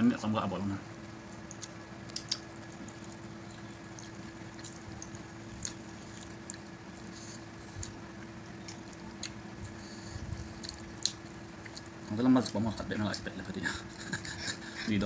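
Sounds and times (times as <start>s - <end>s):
steady background hum: 0.0s - 15.0s
wet chewing clicks: 1.3s - 12.9s.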